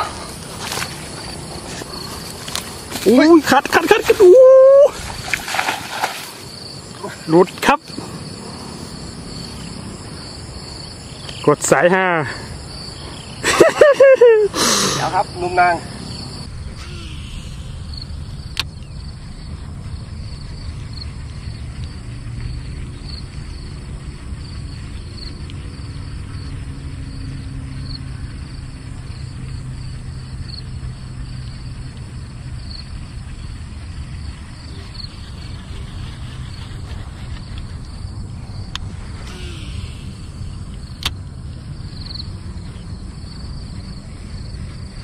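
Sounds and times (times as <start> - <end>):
insects chirping: 0.0 - 45.0
low outdoor rumble: 15.8 - 45.0.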